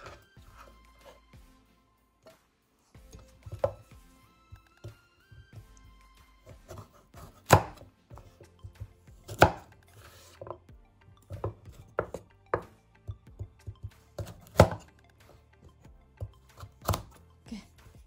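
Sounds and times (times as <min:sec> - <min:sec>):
cleaver chopping on cutting board: 0:03.1 - 0:03.9, 0:06.5 - 0:09.7, 0:11.3 - 0:12.8, 0:13.4 - 0:14.9, 0:16.2 - 0:17.2.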